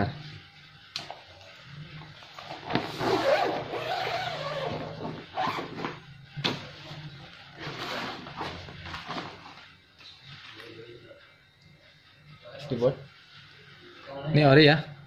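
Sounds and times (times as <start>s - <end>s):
fabric rustling and scraping: 2.2s - 10.6s
zip pulled open: 2.8s - 6.0s.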